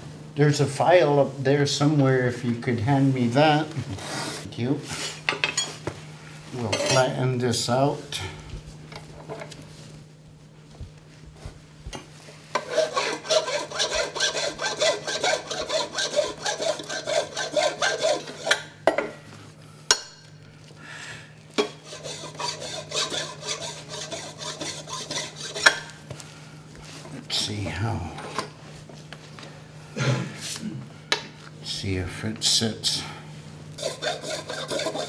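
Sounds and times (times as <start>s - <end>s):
hand file rasping on ivory: 12.6s - 18.6s, 21.8s - 25.8s, 33.8s - 35.0s.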